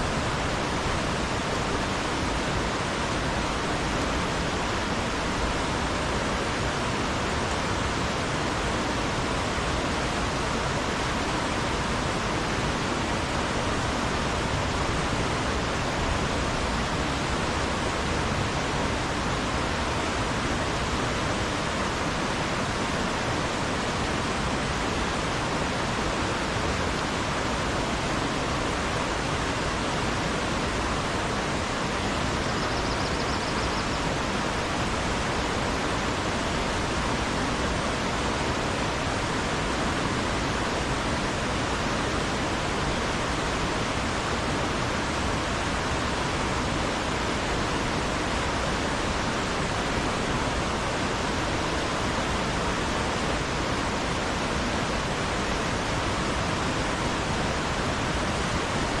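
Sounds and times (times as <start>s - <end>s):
river rushing through rapids: 0.0s - 59.0s.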